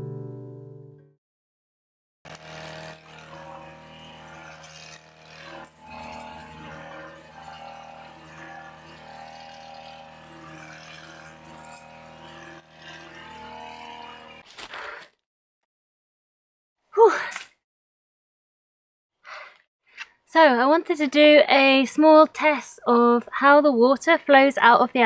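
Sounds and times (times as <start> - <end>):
petrol strimmer engine running: 2.3 - 14.5
line cutting through grass: 2.3 - 15.1.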